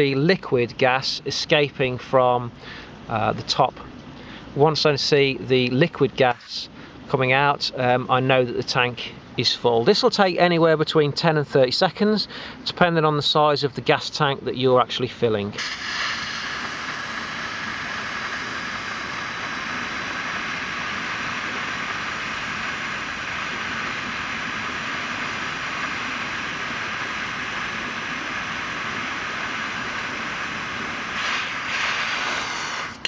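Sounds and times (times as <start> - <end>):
gas hissing from canister: 15.6 - 33.0.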